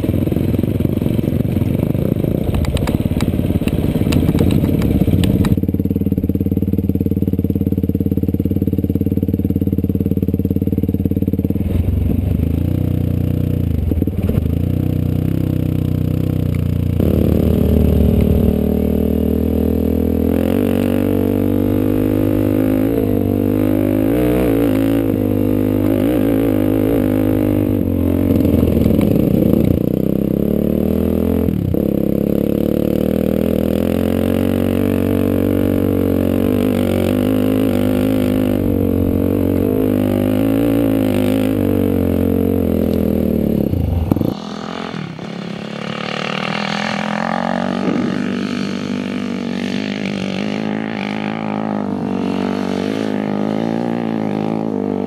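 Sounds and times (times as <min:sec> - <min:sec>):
distant quad bike engine: 0:00.0 - 0:55.0
quad bike engine running close: 0:00.0 - 0:55.0.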